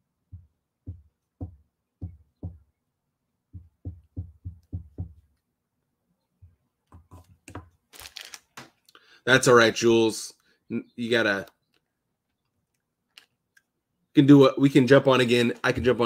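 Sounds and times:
marker pen tapping cloth table: 0.3s - 2.6s, 3.5s - 5.3s, 6.9s - 7.8s.

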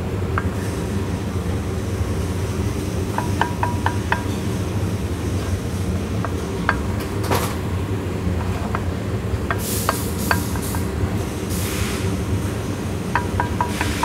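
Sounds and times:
low shop hum: 0.0s - 14.0s
short hissy rushes: 11.5s - 12.1s.

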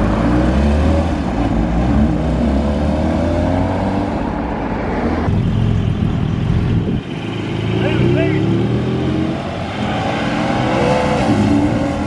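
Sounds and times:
sports car accelerating: 7.8s - 12.0s.

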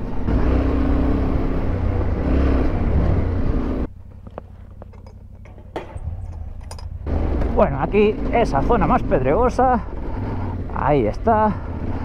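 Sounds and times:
motorcycle engine running: 0.0s - 12.0s
wind and riding noise: 0.0s - 12.0s
low rumble: 2.7s - 10.5s.

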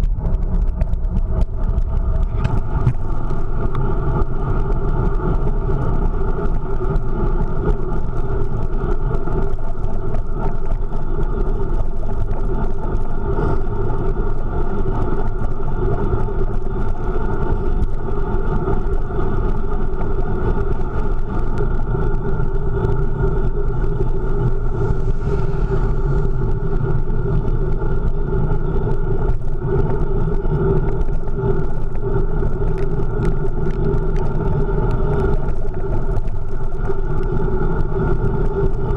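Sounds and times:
muffled wind rush: 0.0s - 38.9s
road rumble: 0.0s - 38.9s.

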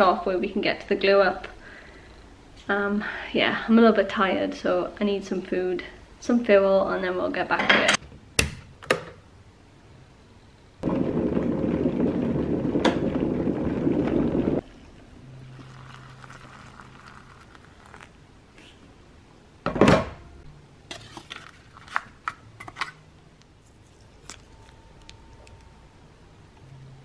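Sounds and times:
electric kettle boiling: 10.8s - 18.2s
spoon stirring plastic pot: 23.6s - 25.6s.

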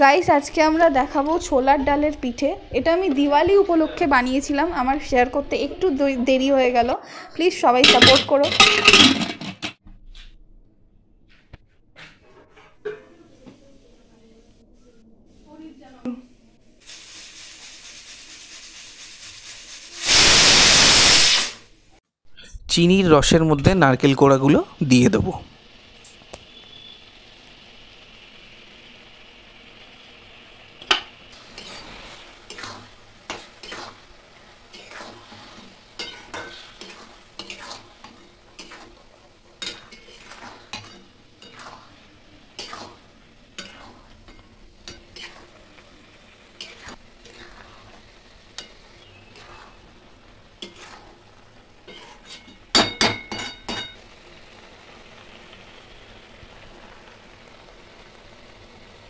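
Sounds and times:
syrup sizzling: 16.8s - 21.7s, 23.2s - 59.0s
metal spatula scraping metal pan: 30.9s - 45.8s, 46.5s - 54.0s.

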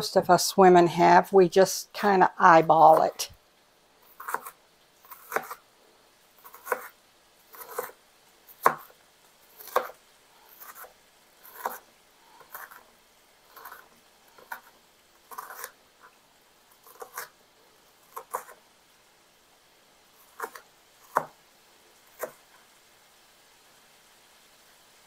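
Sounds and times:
knife chopping on plastic board: 4.2s - 5.6s, 6.4s - 9.0s, 9.6s - 11.8s, 15.3s - 15.8s, 16.8s - 17.3s, 18.1s - 18.6s, 20.3s - 21.4s, 22.2s - 22.5s.

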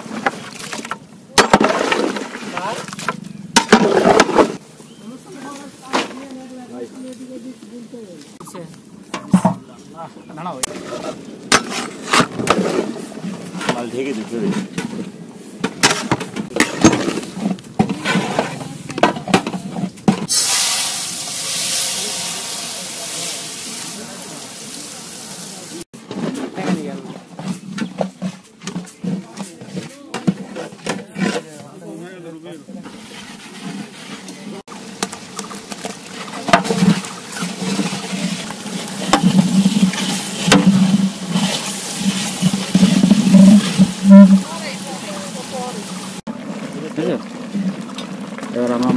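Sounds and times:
metal ladle scraping in pot: 36.1s - 44.8s.

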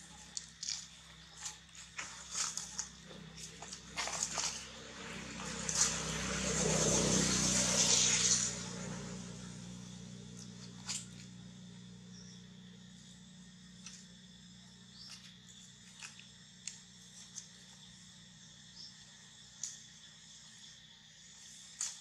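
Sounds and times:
dry leaves crackling: 0.1s - 6.2s
vehicle passing: 2.5s - 12.7s.

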